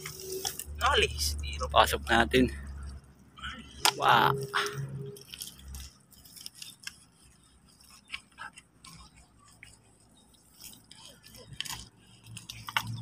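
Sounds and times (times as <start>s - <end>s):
hands digging in wet mud: 3.7s - 13.0s.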